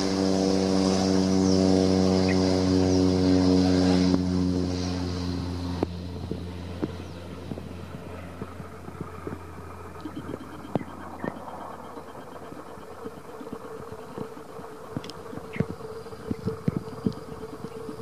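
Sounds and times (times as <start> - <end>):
propeller plane drone: 0.0 - 18.0.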